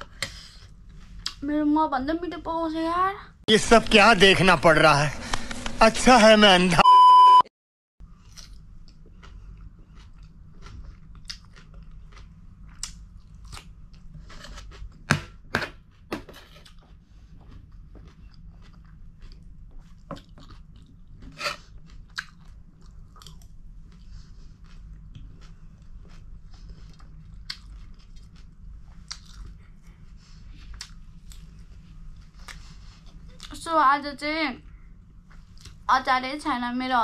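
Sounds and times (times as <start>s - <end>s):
person chewing and crunching food: 8.0s - 33.6s
low steady hum: 8.0s - 37.0s.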